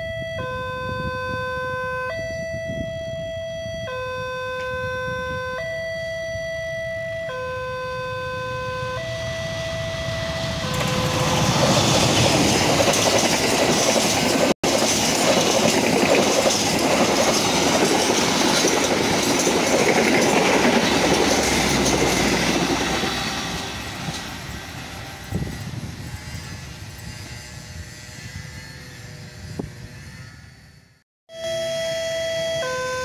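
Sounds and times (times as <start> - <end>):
train horn: 6.6 - 12.2, 22.0 - 30.8
train wheels on rails: 9.1 - 27.4.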